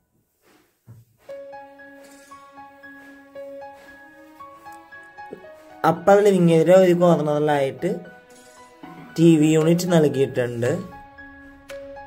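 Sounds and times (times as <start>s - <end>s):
quiet instrumental background music: 0.2s - 12.0s.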